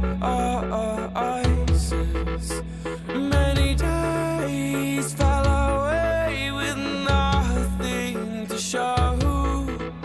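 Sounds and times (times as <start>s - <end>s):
melody over deep bass: 0.0s - 10.0s
heavy bass hit: 1.4s - 4.4s, 9.0s - 10.0s.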